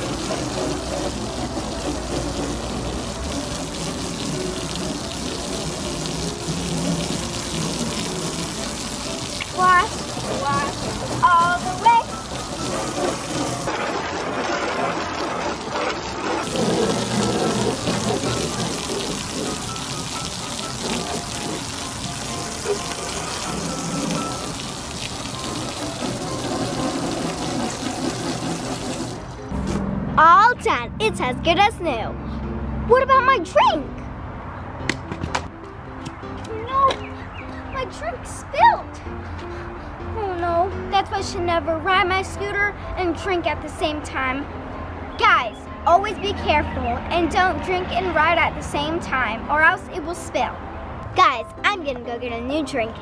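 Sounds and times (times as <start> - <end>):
background music: 0.0 - 15.8, 16.4 - 53.0
hose water spraying on car door: 0.0 - 29.4.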